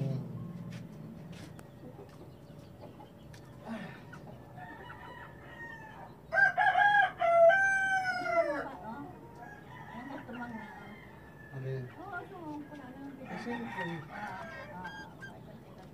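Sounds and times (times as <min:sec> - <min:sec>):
roosters crowing: 0:03.6 - 0:15.8.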